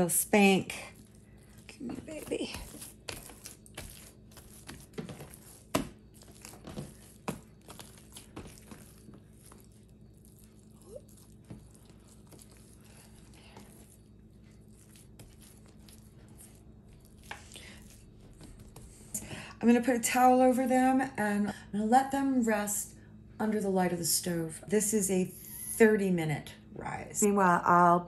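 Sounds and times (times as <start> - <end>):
dough handling sounds: 0.0 - 19.4
low steady hum: 0.0 - 28.0
hands slapping dough on wood: 2.1 - 9.6.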